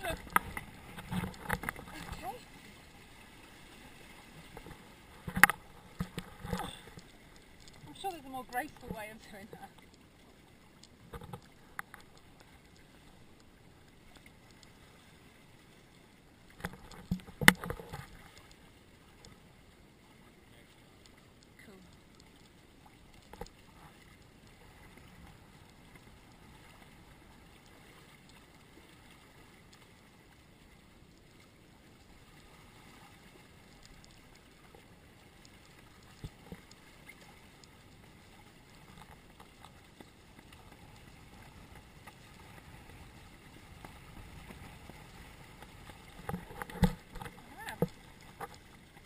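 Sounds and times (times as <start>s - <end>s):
water washing against hulls: 0.0s - 49.0s.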